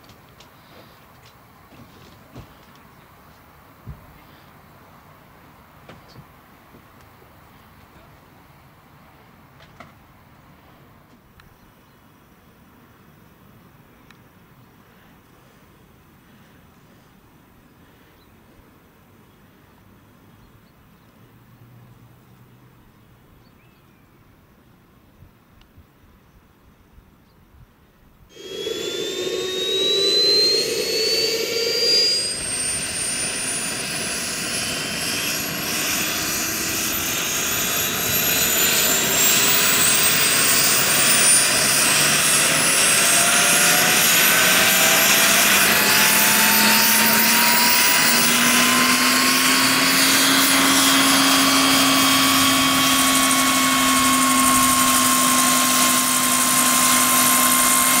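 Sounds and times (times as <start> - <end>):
helicopter rotors turning: 28.3 - 58.0
turbine whine rising in pitch: 28.3 - 58.0.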